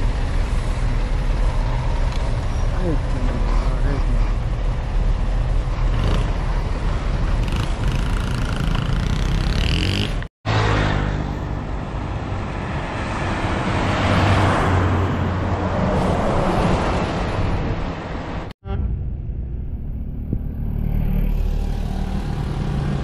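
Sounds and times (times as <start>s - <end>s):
bus engine rumbling: 0.0s - 23.0s
highway traffic: 0.0s - 23.0s
tyre and wind rush: 12.6s - 18.5s.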